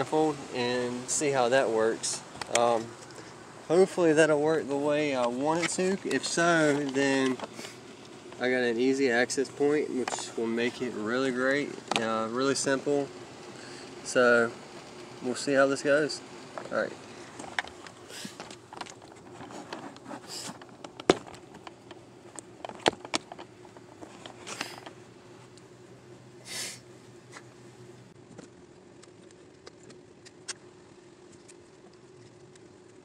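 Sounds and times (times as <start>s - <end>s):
faint steady hum: 0.0s - 33.0s
hands handling wiring: 4.8s - 8.6s, 16.6s - 25.7s.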